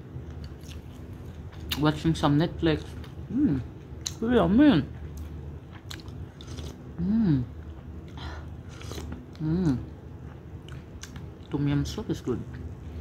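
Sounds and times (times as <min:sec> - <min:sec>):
chewing: 0:00.4 - 0:01.8, 0:08.7 - 0:09.2
person humming mm: 0:07.0 - 0:07.5.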